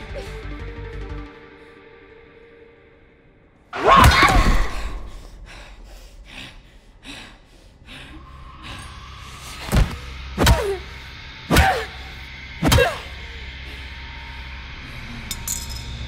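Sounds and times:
low steady drone: 4.8s - 16.0s.

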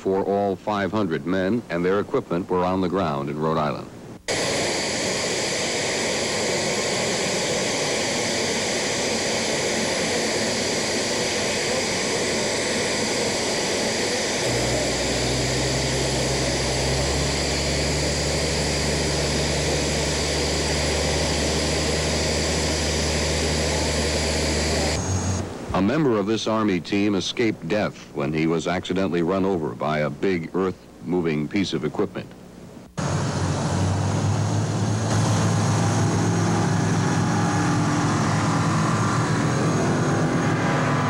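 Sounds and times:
jet engines whining: 4.2s - 27.5s, 32.9s - 41.0s
low engine drone: 4.3s - 25.9s, 33.0s - 41.0s.

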